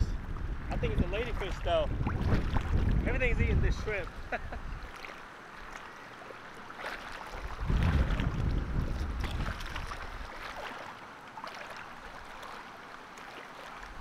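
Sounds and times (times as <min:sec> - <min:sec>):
wind gusting on microphone: 0:00.0 - 0:04.9, 0:07.4 - 0:10.4
shallow water splashing: 0:00.2 - 0:14.0.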